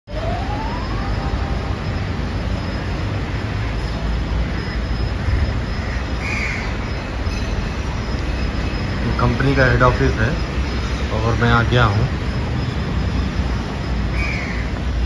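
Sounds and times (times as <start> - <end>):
short high tone: 0.0 - 3.0
street traffic rumble: 0.0 - 15.0
faint rising whine: 0.1 - 3.4.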